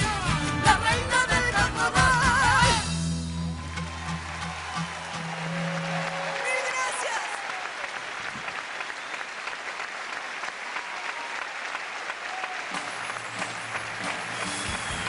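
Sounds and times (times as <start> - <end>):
low bass music: 0.0 - 6.1
audience clapping: 3.5 - 15.0.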